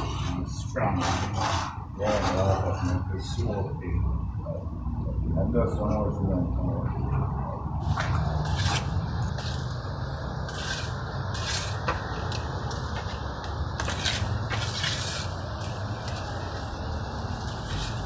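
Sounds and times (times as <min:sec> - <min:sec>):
trowel scraping wet cement: 0:00.0 - 0:03.0, 0:07.9 - 0:09.7, 0:10.4 - 0:12.4, 0:13.8 - 0:16.4, 0:17.5 - 0:18.0.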